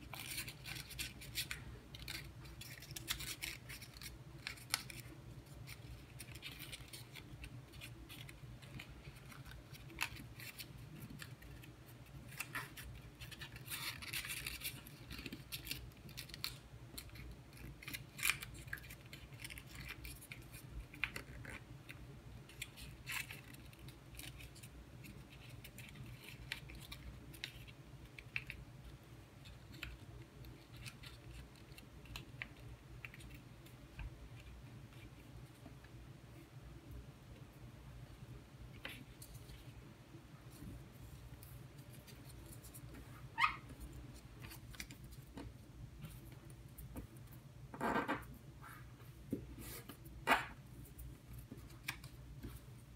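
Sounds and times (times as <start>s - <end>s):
paper crinkling and clicking: 0.0s - 35.6s, 50.9s - 52.7s
low steady hum: 0.0s - 52.9s.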